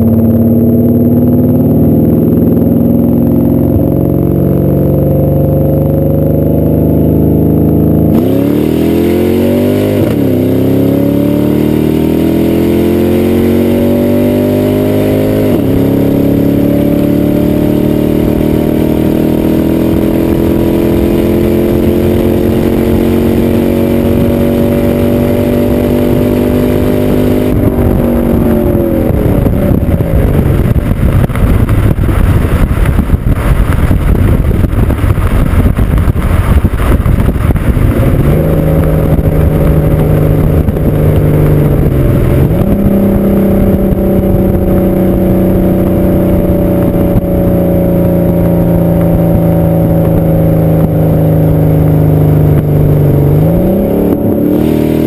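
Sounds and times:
car exhaust at speed: 0.0s - 55.0s.

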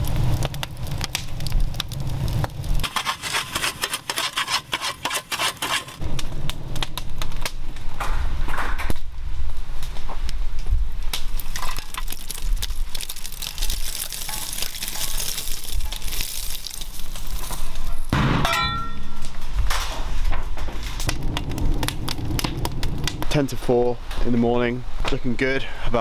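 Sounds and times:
hiss of pouring coals: 0.0s - 6.2s, 10.6s - 18.1s, 19.7s - 24.4s
coals clinking against shovel: 2.8s - 6.0s, 13.4s - 19.4s.

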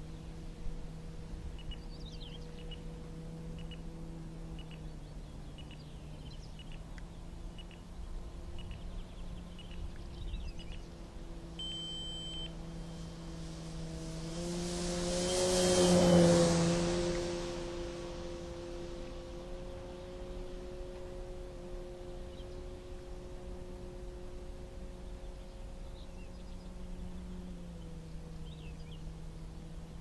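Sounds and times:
model plane motor humming: 0.0s - 30.0s
small birds chirping: 1.5s - 13.1s, 24.8s - 30.0s
high electronic beep: 11.6s - 12.5s.

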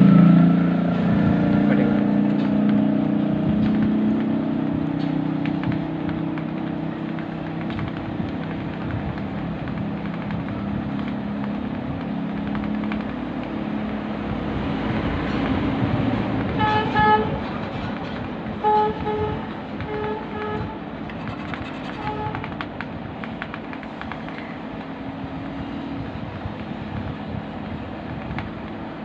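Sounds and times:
low engine hum: 0.0s - 29.0s
vehicle horn tooting: 16.6s - 17.4s, 18.6s - 22.5s.

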